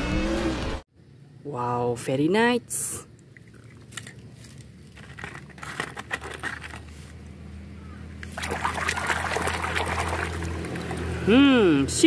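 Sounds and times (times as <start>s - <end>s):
water trickling: 3.1s - 5.4s, 8.2s - 11.3s
water splashing in plastic basin: 8.2s - 11.3s.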